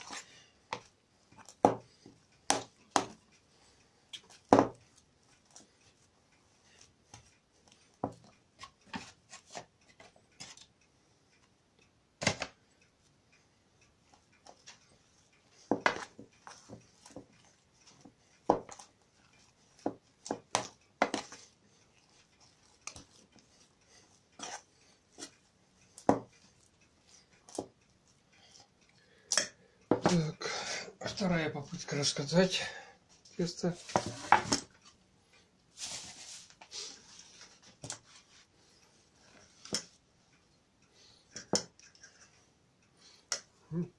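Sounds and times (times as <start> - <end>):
spoon scraping enamel bowl: 24.4 - 25.3.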